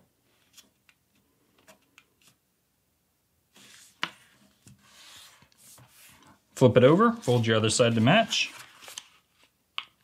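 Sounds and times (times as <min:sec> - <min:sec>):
paper rustling: 0:03.5 - 0:09.6
paper crinkling: 0:07.2 - 0:09.6
paper fold snap: 0:08.5 - 0:10.0.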